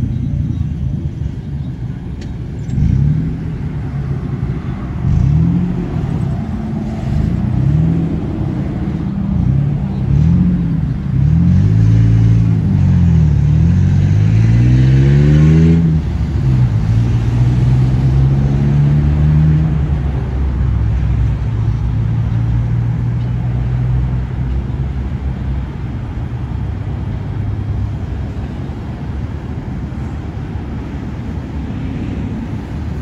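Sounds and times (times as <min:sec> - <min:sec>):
rumble of passing traffic: 0:00.0 - 0:33.0
vehicle engine accelerating: 0:00.0 - 0:33.0.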